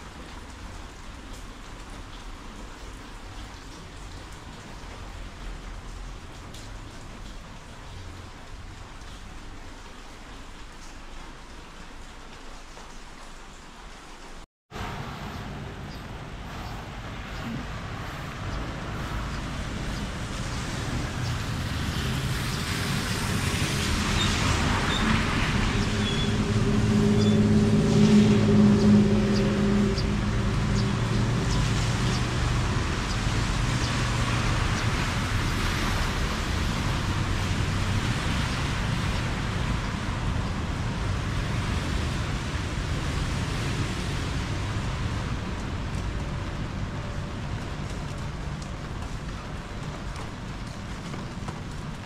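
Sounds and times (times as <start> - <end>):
steady traffic noise: 0.0 - 13.1, 13.7 - 52.0
vehicle passing on wet road: 14.7 - 52.0.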